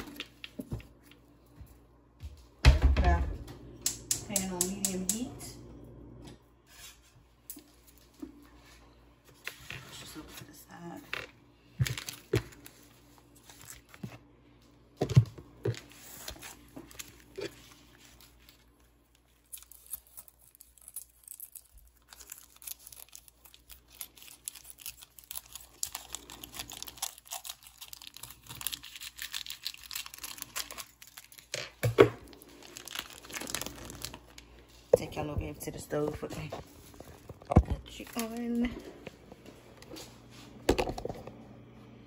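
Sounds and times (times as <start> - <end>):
plastic wrapping crinkling and tearing: 11.8 - 14.0, 15.8 - 35.3.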